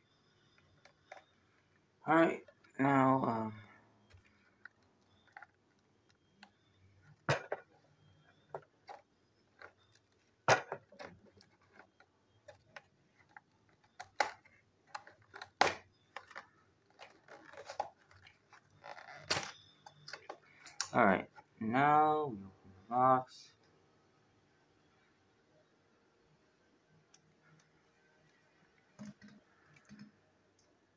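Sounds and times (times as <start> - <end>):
cardboard rustling: 8.3 - 20.1.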